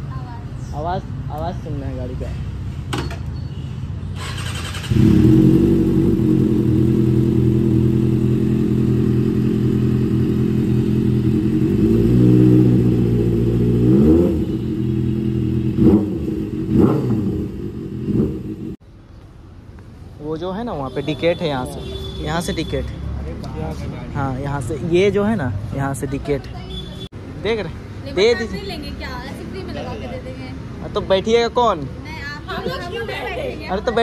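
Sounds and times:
motorcycle engine starting and idling: 4.2 - 13.9.

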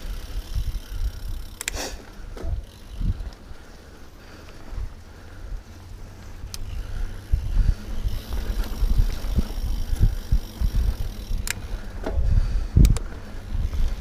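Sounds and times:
bike jolting over bumps: 0.0 - 14.0
wind buffeting microphone: 2.4 - 3.5, 4.8 - 14.0.

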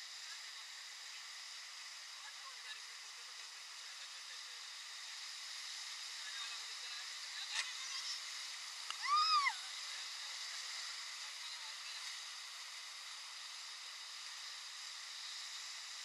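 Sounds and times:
person squealing: 9.0 - 9.6.

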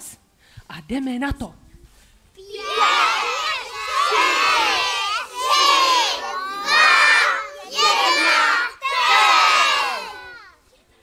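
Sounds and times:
children shouting a countdown: 2.4 - 10.6.

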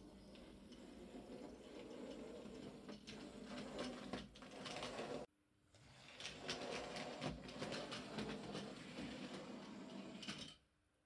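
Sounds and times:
wheels clicking over rail joints: 6.2 - 10.6.

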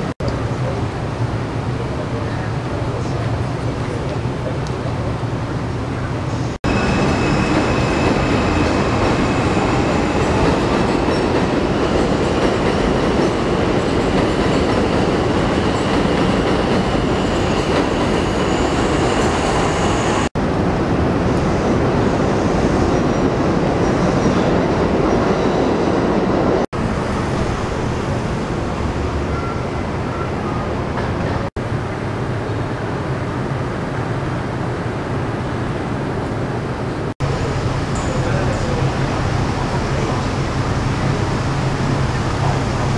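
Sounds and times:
elevated train rumbling: 0.0 - 42.9
high wheel squeal: 6.4 - 12.1, 16.8 - 20.3.

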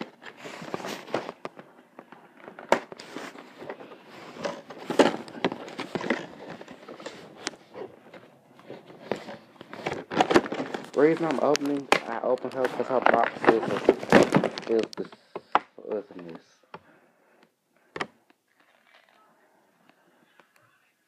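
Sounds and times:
plastic packaging rustling: 0.0 - 16.4, 18.5 - 19.3.

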